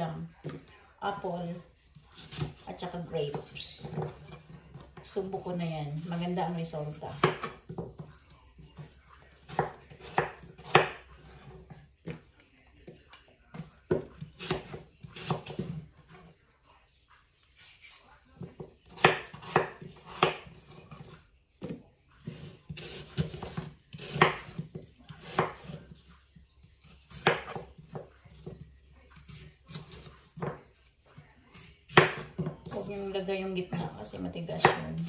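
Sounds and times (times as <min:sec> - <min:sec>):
knife cutting on wooden board: 0:01.9 - 0:05.0, 0:06.0 - 0:12.2, 0:13.9 - 0:15.8, 0:17.6 - 0:25.9.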